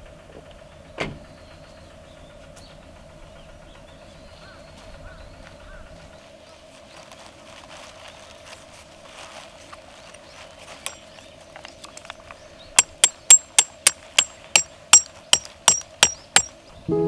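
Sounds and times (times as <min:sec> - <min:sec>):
hammer striking metal tent stake: 0:10.8 - 0:11.1, 0:12.8 - 0:16.6.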